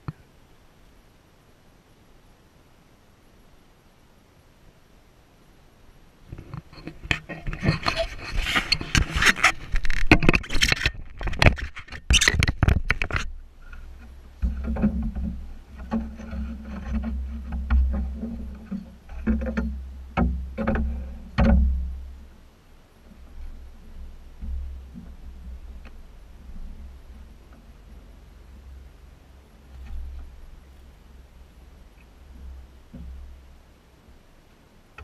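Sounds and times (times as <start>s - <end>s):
low rumble: 13.2s - 34.4s
knocks against boat: 16.9s - 22.0s.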